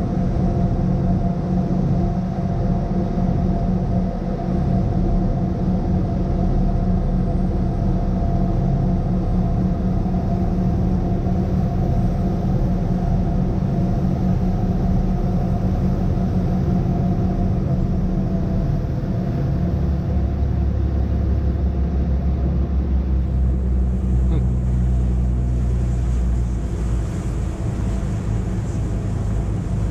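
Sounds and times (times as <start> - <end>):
boat engine drone: 0.0 - 29.9
wind: 0.0 - 29.9
water noise: 9.4 - 29.9.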